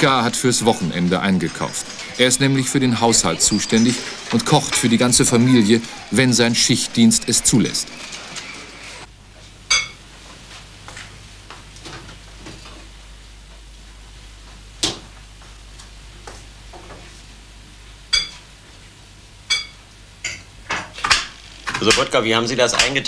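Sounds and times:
utensils and dishes clinking: 0.0s - 9.0s, 18.1s - 18.4s, 19.5s - 22.1s.

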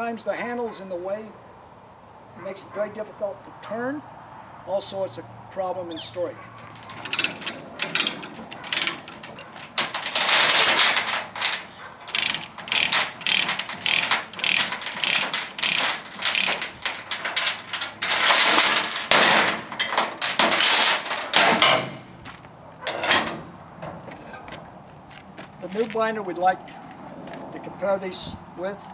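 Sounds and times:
chain clatter: 6.6s - 23.6s
ratchet pawl clicking: 6.9s - 9.2s, 10.1s - 17.6s.

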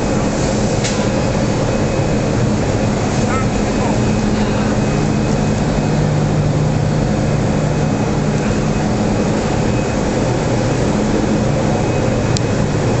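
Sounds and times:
industrial rumbling: 0.0s - 13.0s
low hum: 0.0s - 13.0s.

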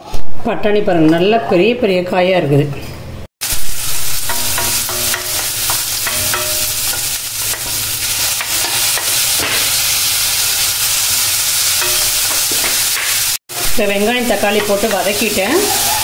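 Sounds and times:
onions sizzling in oil: 3.4s - 16.0s.

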